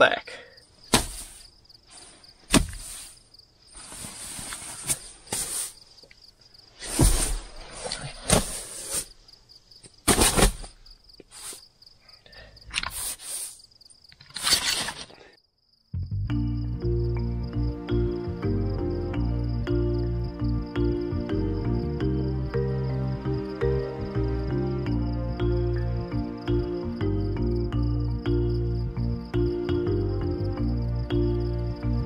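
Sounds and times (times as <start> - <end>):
cricket trill: 0.0 - 32.0
sleeping bag rustling: 0.8 - 6.0, 6.7 - 9.2.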